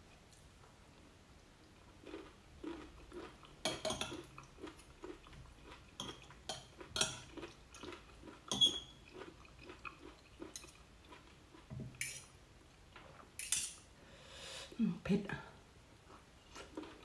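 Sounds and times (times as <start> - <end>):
person chewing noodles: 1.6 - 11.7, 15.9 - 17.0
cutlery clinking on plate: 8.5 - 8.9, 12.0 - 12.3, 13.4 - 13.8.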